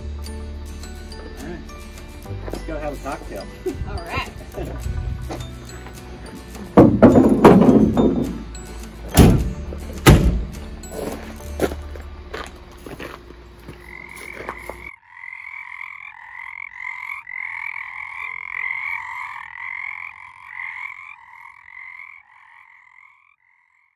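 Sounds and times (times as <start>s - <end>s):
knocks: 6.8s - 8.5s
frogs croaking: 12.0s - 23.9s.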